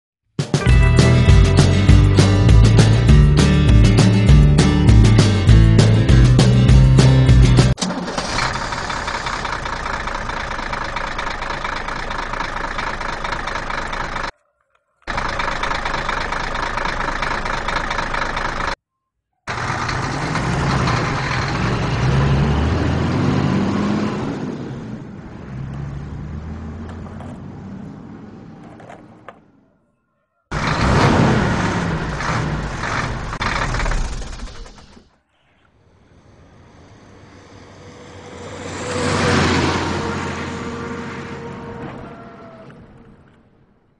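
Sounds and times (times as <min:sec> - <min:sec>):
vehicle engine running: 0:00.7 - 0:14.3, 0:15.1 - 0:18.8, 0:19.5 - 0:28.9, 0:30.5 - 0:35.2
low engine rumble: 0:00.8 - 0:14.4, 0:15.1 - 0:18.8.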